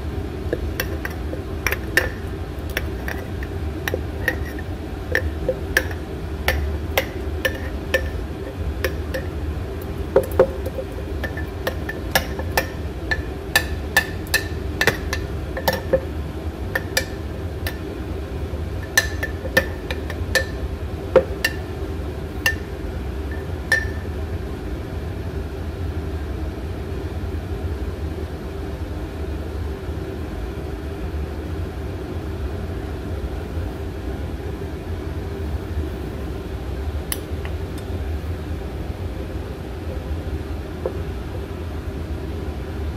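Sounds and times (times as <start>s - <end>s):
steady low hum: 0.0s - 42.9s
spoon clinking against glass jar: 0.8s - 9.3s, 10.2s - 16.1s, 18.8s - 20.6s, 23.3s - 24.0s.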